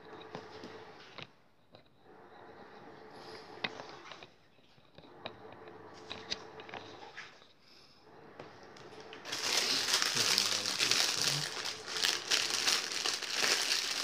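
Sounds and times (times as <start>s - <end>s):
plastic wrapper crinkling: 9.2s - 14.0s.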